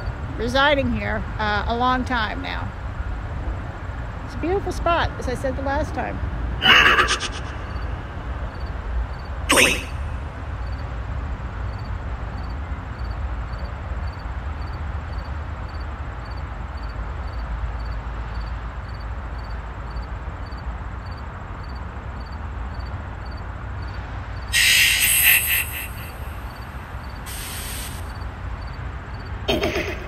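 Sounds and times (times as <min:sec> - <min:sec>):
loud burst of hiss: 0:24.5 - 0:28.1.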